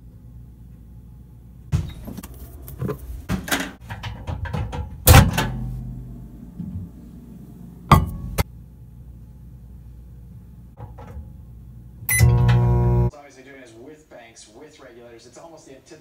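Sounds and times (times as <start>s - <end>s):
microwave oven humming: 0.0s - 2.3s, 3.2s - 13.1s
clicks and knocks: 1.8s - 5.7s.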